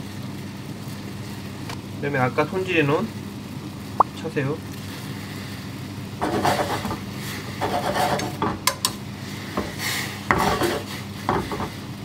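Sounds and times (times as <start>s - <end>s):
splashing and scraping in saucepan: 6.2s - 11.9s.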